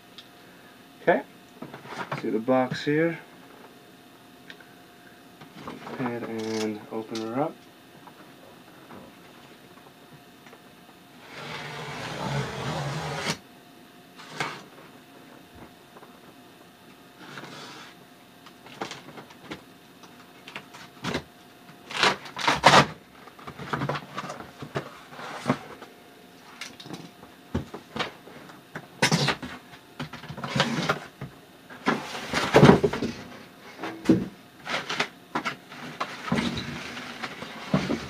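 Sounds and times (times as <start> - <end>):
cardboard scraping and rustling: 11.2 - 13.4, 21.8 - 25.8, 30.3 - 31.1.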